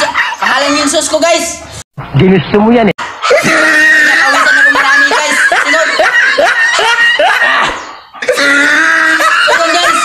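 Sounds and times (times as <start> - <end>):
person laughing: 3.2 - 10.0.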